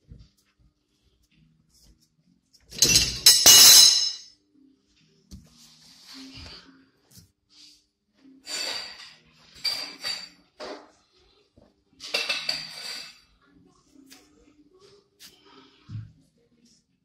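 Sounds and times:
metal tools clanking and scraping: 2.7s - 4.3s, 8.4s - 10.4s.

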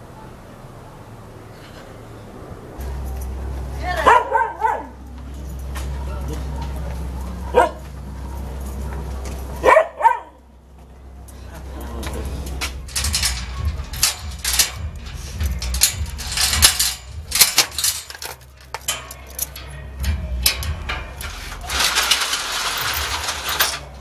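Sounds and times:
low rumble: 10.5s - 23.6s
door latch clicking and rattling: 12.8s - 23.0s.

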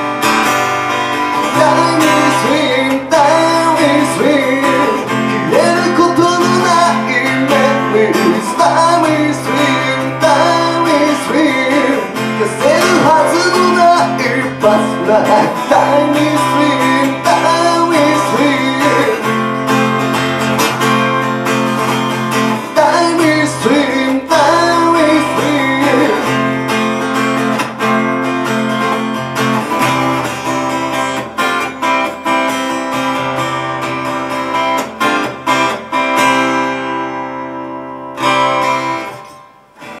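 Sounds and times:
acoustic guitar strumming: 0.0s - 40.0s
person singing: 1.3s - 19.5s, 22.5s - 26.5s.

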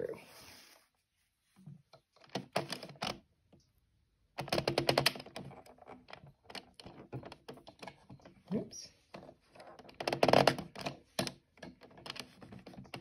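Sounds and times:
knitting machine needles clicking: 4.4s - 8.3s, 9.1s - 13.0s.

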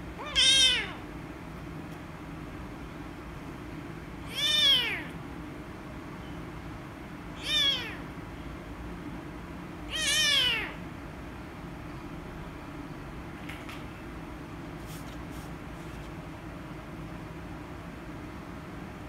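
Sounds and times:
kitten meowing loudly: 0.2s - 1.0s, 4.3s - 5.2s, 7.4s - 8.1s, 9.9s - 10.8s.

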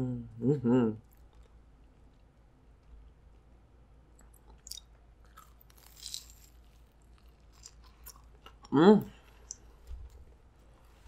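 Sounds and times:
soft wet clicks of biting: 4.1s - 6.5s, 9.3s - 9.7s
wet mouth sounds: 4.2s - 6.4s.

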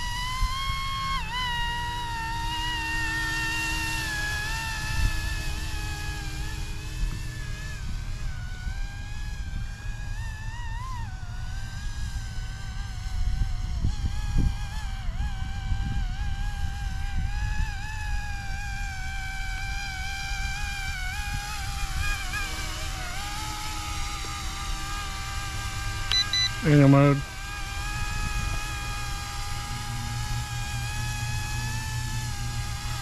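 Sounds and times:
rc helicopter rotors whining: 0.0s - 33.0s
wind buffeting microphone: 12.2s - 19.4s, 27.2s - 33.0s.

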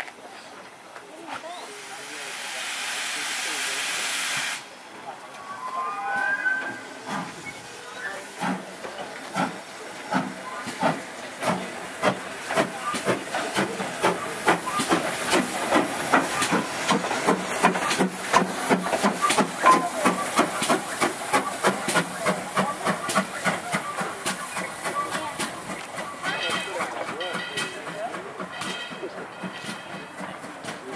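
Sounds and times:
steam hissing: 1.4s - 28.4s
steam locomotive exhaust chuffs: 6.8s - 30.9s.

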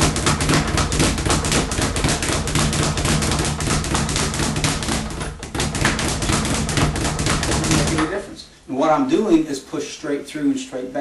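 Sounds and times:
speed bag drumming: 0.0s - 8.3s.

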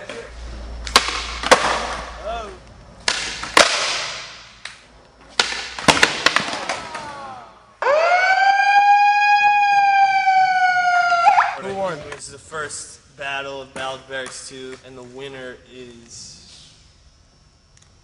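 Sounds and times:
skateboard pops and landings: 0.9s - 2.1s, 3.0s - 4.4s, 5.2s - 7.2s
megaphone siren tone: 7.8s - 11.7s.

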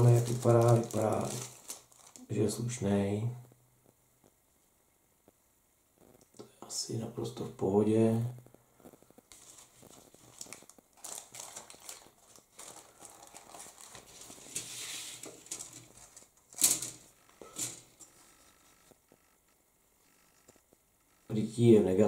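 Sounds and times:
plastic bag crinkling: 0.0s - 2.7s, 8.8s - 18.9s
plastic parts clicking: 15.5s - 17.9s.

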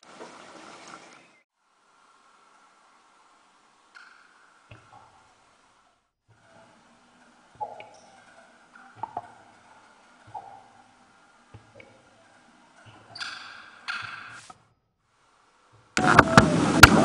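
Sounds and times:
faint hiss: 0.0s - 6.8s.

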